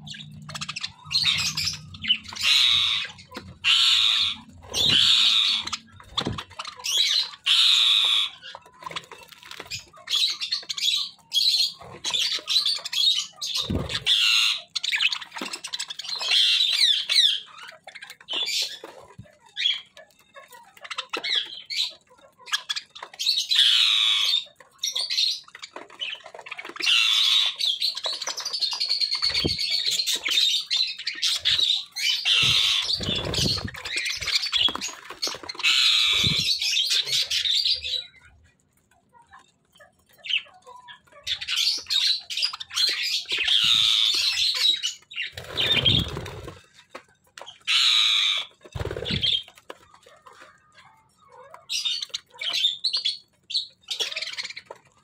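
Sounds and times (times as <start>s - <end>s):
budgerigars chattering and warbling: 0.0s - 46.9s, 47.5s - 55.0s.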